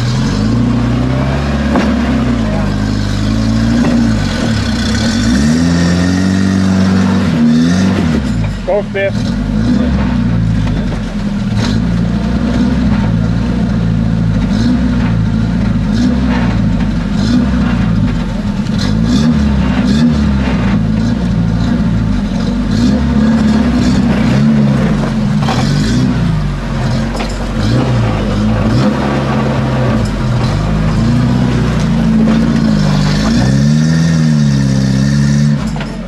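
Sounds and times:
buggy engine revving: 0.0 - 36.0
sharp knocks: 1.6 - 5.2.

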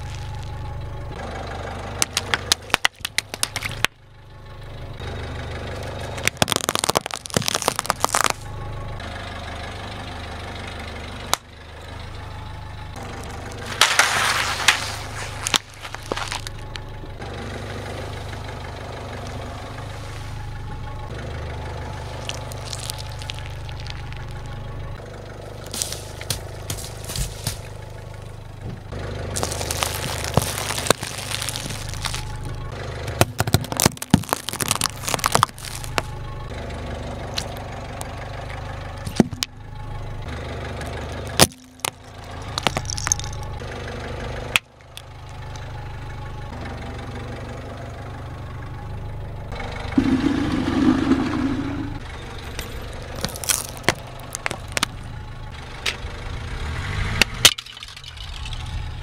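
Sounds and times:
tyre crushing objects: 0.0 - 0.4, 6.1 - 8.4, 13.6 - 16.7, 22.1 - 24.5, 25.6 - 27.8, 29.4 - 32.5, 33.1 - 36.2, 41.3 - 43.4, 53.2 - 55.0
car engine idling: 0.0 - 59.0
drink pouches bursting: 6.1 - 8.4, 13.6 - 16.7, 22.0 - 24.5, 25.6 - 27.6, 29.4 - 32.5, 33.2 - 36.1, 41.3 - 43.4, 53.2 - 55.0.

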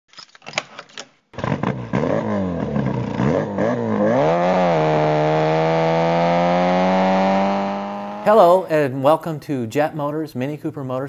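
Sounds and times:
engine starting and revving: 1.4 - 8.6.

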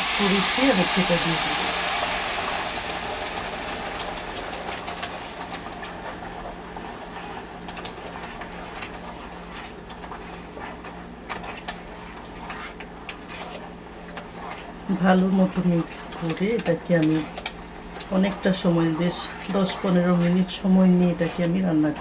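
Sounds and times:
paste poured into pot: 0.0 - 4.1
sizzling in a pot: 0.0 - 9.5
spatula stirring thick sauce: 4.4 - 22.0.

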